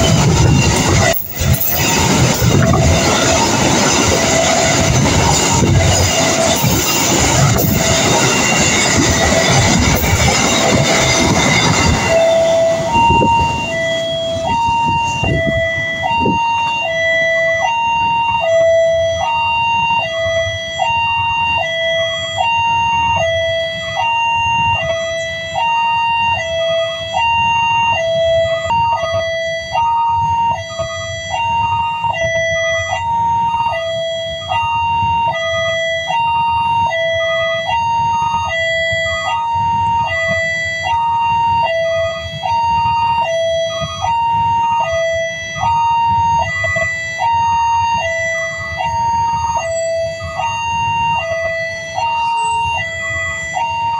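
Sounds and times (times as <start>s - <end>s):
idling road traffic rumble: 0.0s - 29.4s
level-crossing two-tone alarm: 0.0s - 53.9s.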